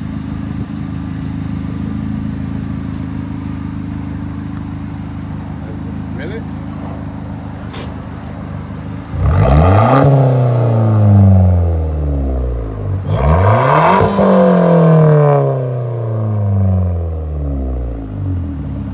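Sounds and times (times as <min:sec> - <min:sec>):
car engine revving: 0:00.0 - 0:18.9.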